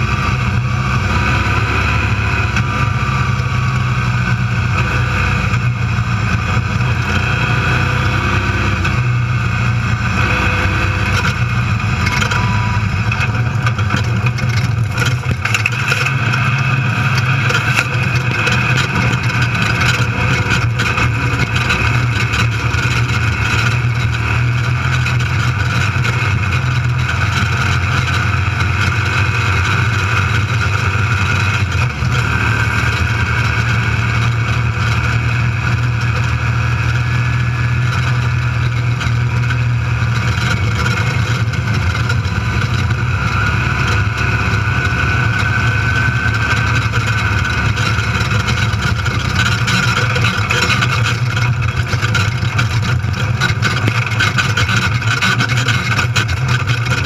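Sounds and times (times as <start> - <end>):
road noise: 0.0 - 57.0
vehicle engine running at speed: 0.0 - 57.0.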